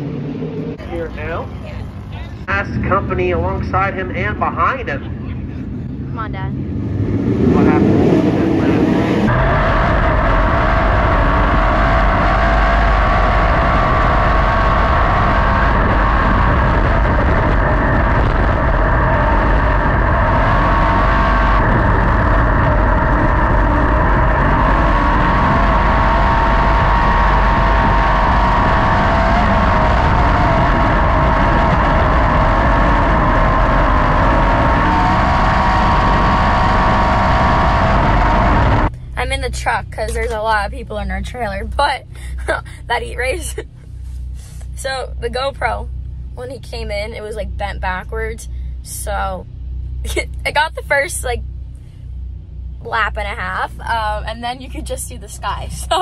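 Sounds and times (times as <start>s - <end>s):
wind buffeting microphone: 0.0s - 43.3s
racing car engine running hard: 0.0s - 56.0s.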